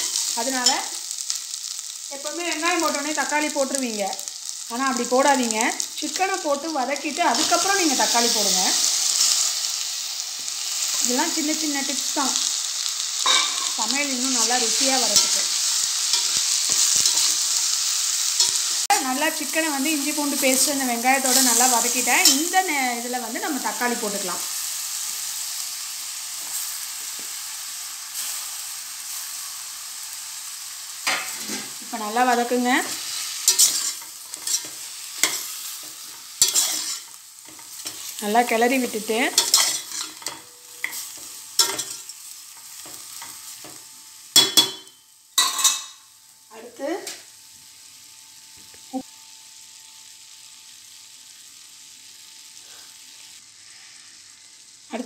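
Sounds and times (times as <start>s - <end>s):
food sizzling in hot oil: 0.0s - 55.0s.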